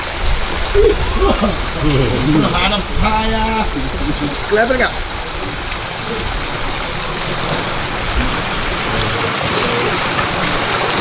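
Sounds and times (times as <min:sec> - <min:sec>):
water rushing and splashing: 0:00.0 - 0:11.0.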